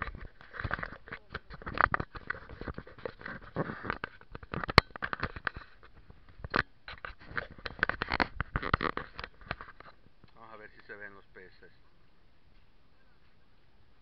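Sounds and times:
camera handling rubbing and clicks: 0.0 - 10.0.

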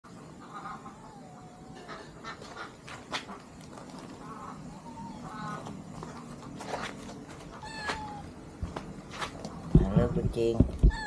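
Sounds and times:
kittens mewing: 4.5 - 5.7, 7.5 - 8.4, 10.8 - 11.0
sharp taps and scuffs: 6.0 - 10.0.

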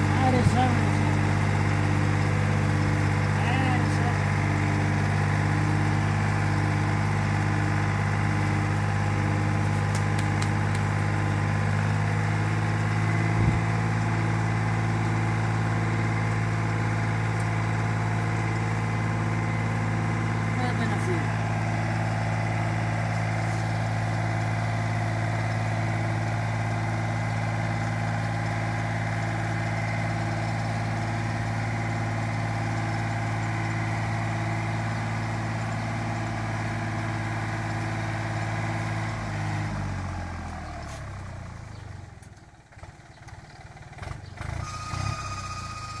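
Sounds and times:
tractor diesel engine under load: 0.0 - 46.0.

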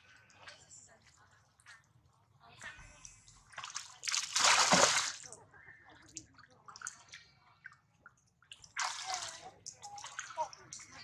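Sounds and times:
water splashing: 3.5 - 5.3, 8.5 - 11.0
water dripping: 6.1 - 11.0.

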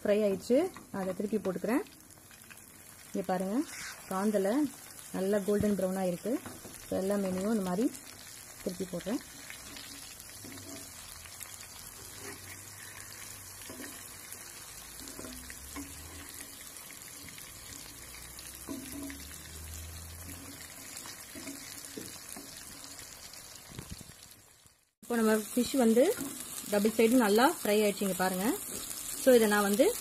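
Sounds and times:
fish sizzling in oil: 0.0 - 30.0
turner tapping and scraping pan: 5.5 - 8.0, 8.8 - 23.2, 28.5 - 30.0.

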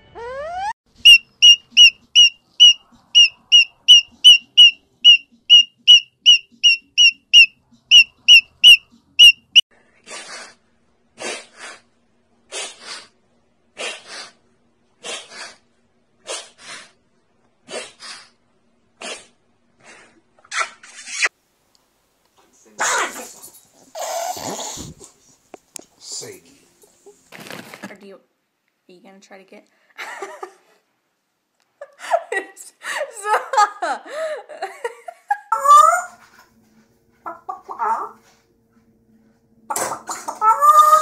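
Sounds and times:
high-pitched squeaks: 0.0 - 9.6
lorikeet screeching: 0.2 - 9.6.

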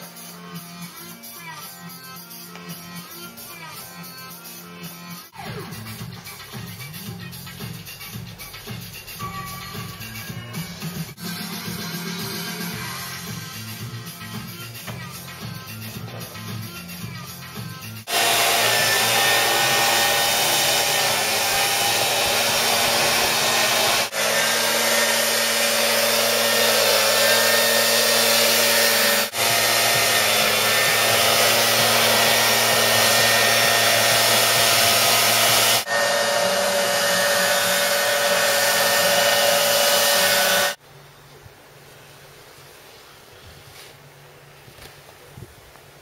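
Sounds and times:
electric blower fan rushing: 18.1 - 40.8.

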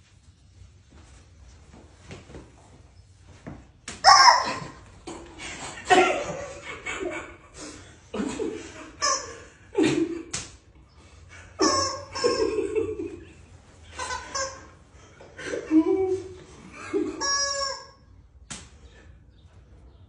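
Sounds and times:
men laughing: 4.5 - 10.4, 11.3 - 17.7
sharp snap: 10.3 - 10.6, 18.5 - 18.8.

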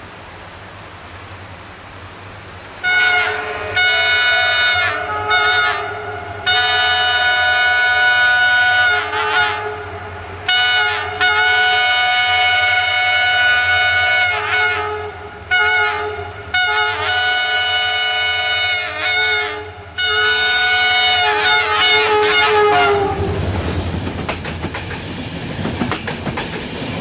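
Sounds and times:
locomotive air horn blasts: 2.8 - 23.4.

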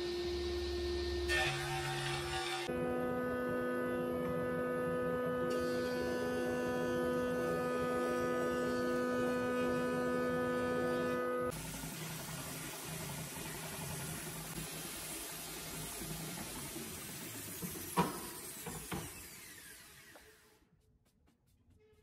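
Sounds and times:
woodworking machine whining hum: 0.0 - 11.7, 18.0 - 20.5.

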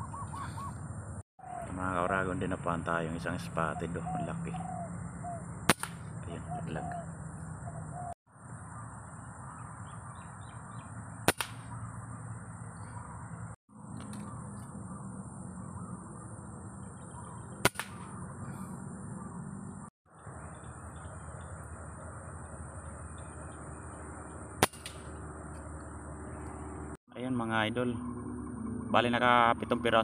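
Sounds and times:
faint bird chirps: 0.0 - 2.3, 3.1 - 5.5, 6.2 - 11.1, 11.7 - 13.5, 14.1 - 24.1
steady outdoor hiss: 0.0 - 28.0
distant road traffic rumble: 0.0 - 30.0
air rifle shot: 5.7 - 6.1, 11.2 - 11.8, 17.6 - 18.2, 24.6 - 25.2
high-pitched whine: 8.3 - 30.0.

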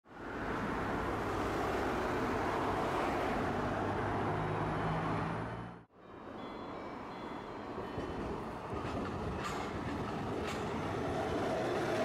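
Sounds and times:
cars driving by: 0.1 - 7.0.

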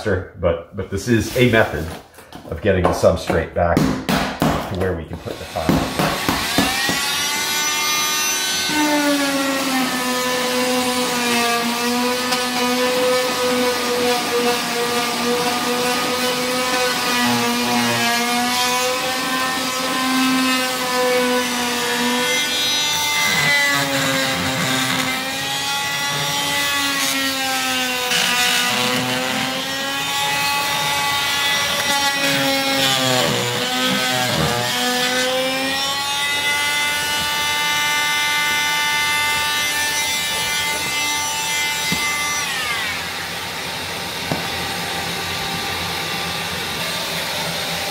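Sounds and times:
multitool rasp grinding: 5.2 - 43.5.

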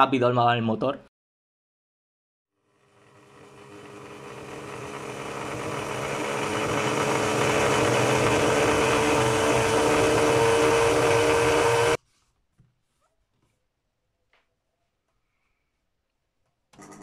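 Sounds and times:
small motor whining: 2.6 - 12.0.

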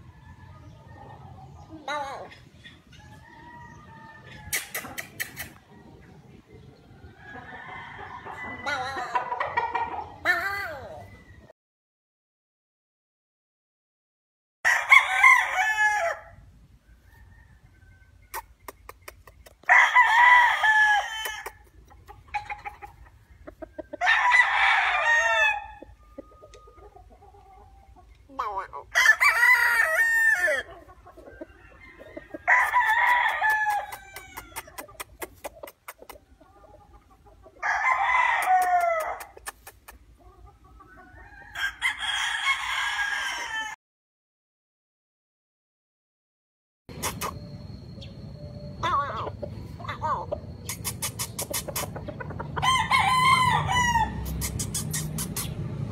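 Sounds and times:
roosters crowing: 0.0 - 6.0, 6.9 - 10.9, 14.6 - 18.3, 19.6 - 35.0, 36.4 - 39.4, 40.8 - 43.8, 46.9 - 50.4, 51.5 - 55.2.

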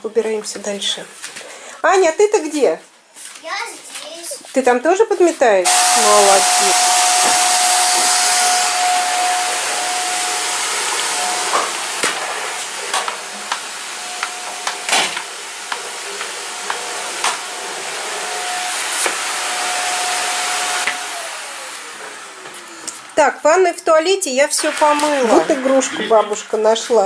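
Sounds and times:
vacuum cleaner running: 5.6 - 27.0.

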